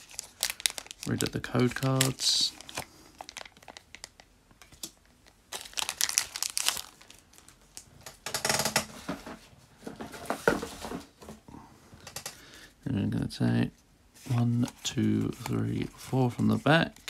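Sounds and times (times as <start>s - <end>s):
foil wrapper crinkling: 0.0s - 7.9s
trading cards being handled: 14.2s - 17.0s.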